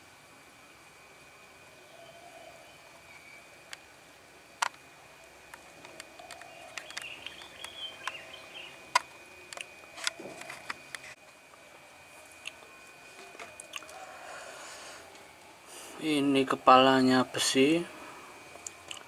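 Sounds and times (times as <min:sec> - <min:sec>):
faint steady high tone: 0:00.9 - 0:03.7.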